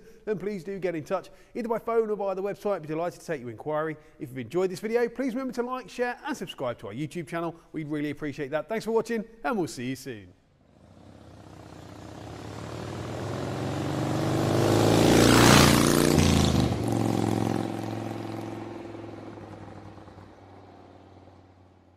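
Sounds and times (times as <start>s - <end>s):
vehicle engine passing by: 10.7s - 21.9s.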